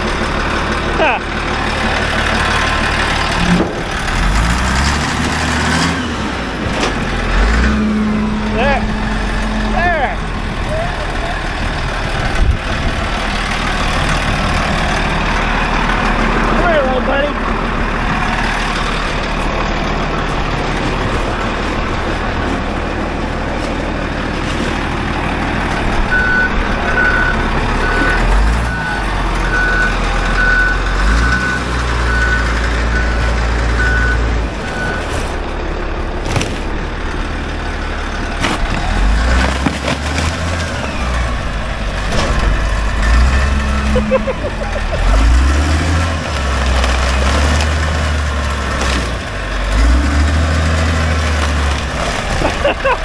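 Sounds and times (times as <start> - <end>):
diesel engine running: 0.0 - 53.0
backup alarm beeping: 26.1 - 35.1.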